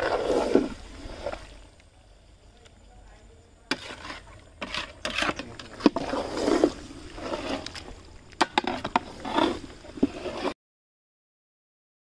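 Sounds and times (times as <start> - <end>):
spatula scraping curry in pot: 3.7 - 10.6.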